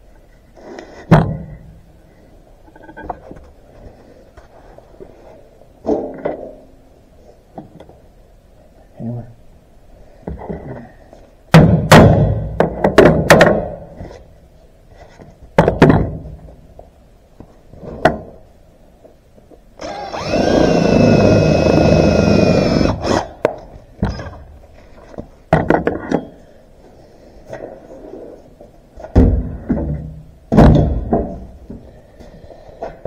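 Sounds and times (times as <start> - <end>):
cordless drill boring through steel: 19.8 - 23.4.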